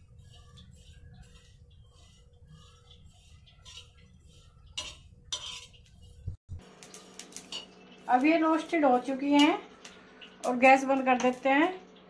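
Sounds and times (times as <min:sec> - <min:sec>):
metal spatula scraping a flat pan: 0:00.0 - 0:06.4.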